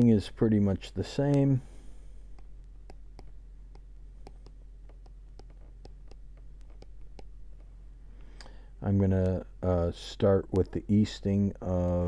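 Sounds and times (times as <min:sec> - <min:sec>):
stylus tapping on glass screen: 0:02.3 - 0:07.5.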